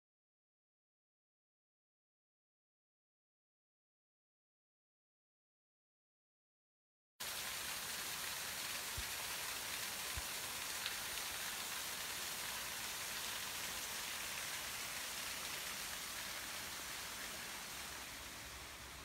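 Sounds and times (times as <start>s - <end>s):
water gushing from a pipe: 7.2s - 19.0s.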